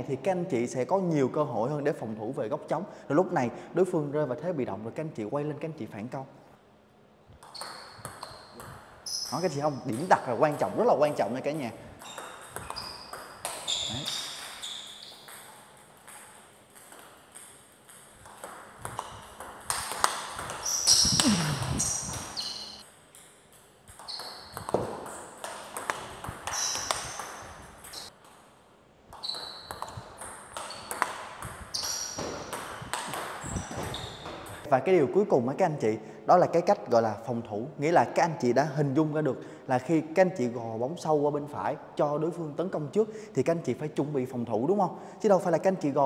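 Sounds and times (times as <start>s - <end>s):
table tennis ball clicking: 12.0s - 28.1s.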